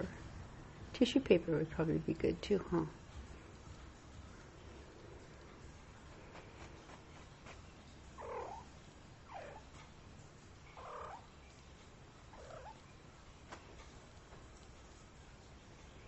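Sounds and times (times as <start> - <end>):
kitten trilling: 8.2 - 9.7, 10.7 - 11.3, 12.3 - 12.8.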